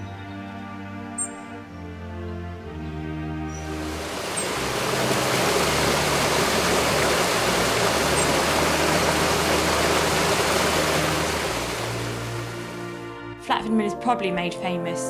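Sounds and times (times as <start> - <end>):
water rushing over sluice: 3.6 - 13.1.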